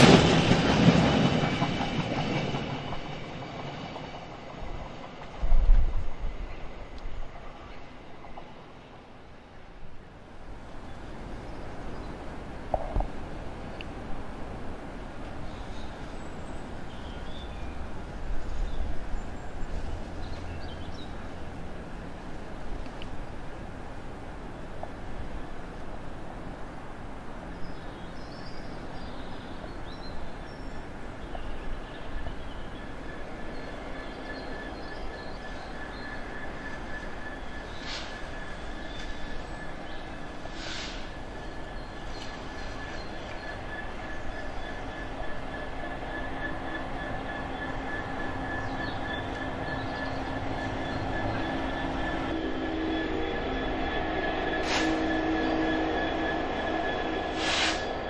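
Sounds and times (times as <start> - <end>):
freight train rumble: 0.0 - 58.0
high whine from rails: 0.0 - 58.0
birds chirping: 27.4 - 58.0
low whining tone: 42.2 - 58.0
high-pitched wheel squeal: 42.6 - 58.0.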